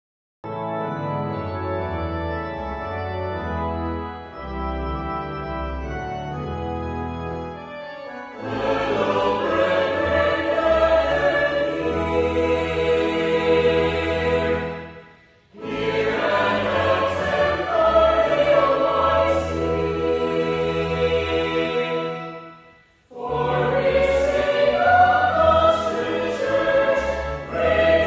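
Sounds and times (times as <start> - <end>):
held organ chords with bass: 0.4 - 28.0
mixed choir singing: 8.4 - 28.0.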